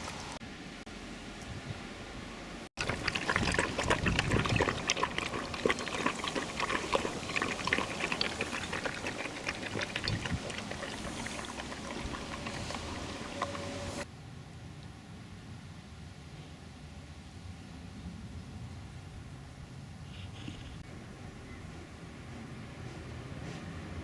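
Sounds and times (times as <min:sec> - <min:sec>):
puppies lapping milk: 0:02.8 - 0:14.0.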